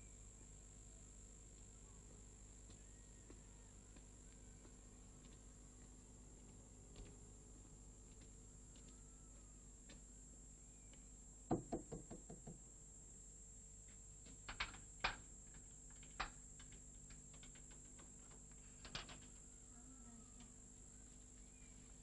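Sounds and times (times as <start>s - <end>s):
faint steady hum: 0.0s - 22.0s
knocking on wooden door: 11.5s - 12.6s.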